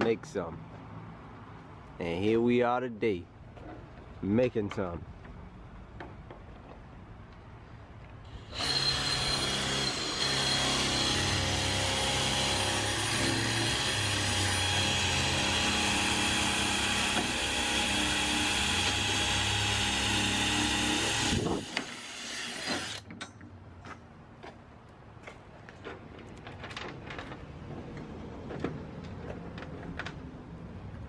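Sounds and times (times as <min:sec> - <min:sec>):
cordless drill drilling: 0:08.3 - 0:23.0.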